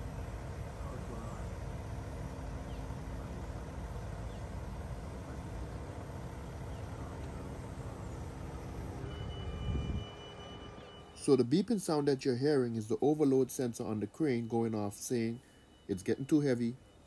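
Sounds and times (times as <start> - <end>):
diesel engine running: 0.0 - 17.0
high electronic beeping: 13.5 - 17.0.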